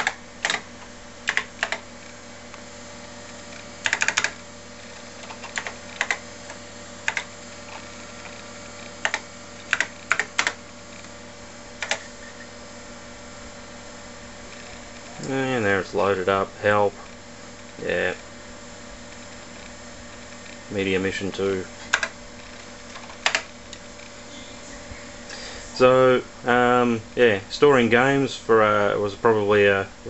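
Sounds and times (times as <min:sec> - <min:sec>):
computer keyboard keystrokes: 0:00.0 - 0:01.8, 0:03.8 - 0:04.4, 0:05.2 - 0:06.2, 0:07.0 - 0:07.3, 0:09.0 - 0:10.6, 0:11.8 - 0:12.1, 0:21.9 - 0:22.2, 0:23.0 - 0:23.5
steady low hum: 0:00.0 - 0:30.0.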